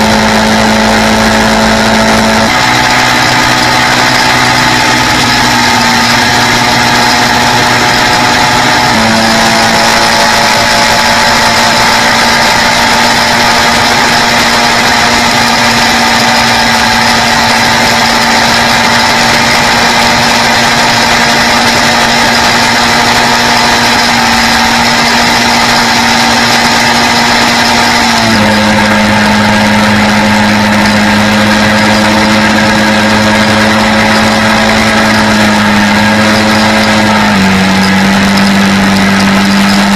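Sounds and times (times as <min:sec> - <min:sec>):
constant rushing noise: 0:00.0 - 0:39.9
quad bike engine running: 0:00.0 - 0:39.9.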